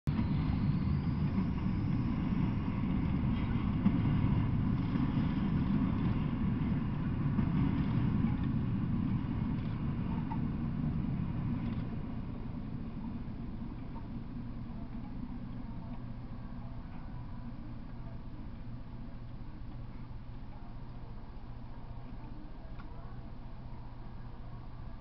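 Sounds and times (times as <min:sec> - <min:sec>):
freight train rolling past: 0:00.1 - 0:25.0.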